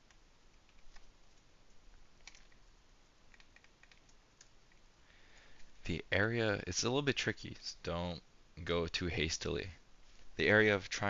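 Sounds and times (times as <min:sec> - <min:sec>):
computer keyboard keystrokes: 0:02.2 - 0:02.7, 0:03.3 - 0:04.5.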